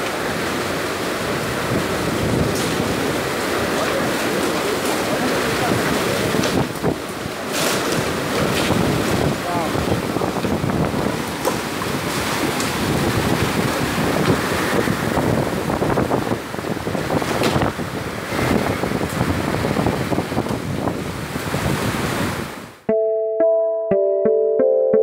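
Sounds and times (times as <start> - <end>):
gusting wind on microphone: 0.0 - 22.9
heavy rain: 0.0 - 22.9
electronic piano jingle: 22.9 - 25.0.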